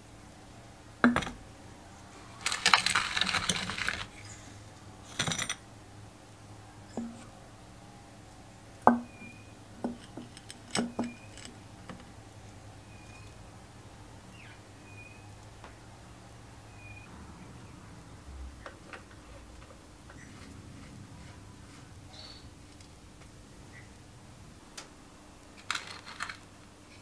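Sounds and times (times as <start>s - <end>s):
rattling clatter: 2.4s - 4.1s.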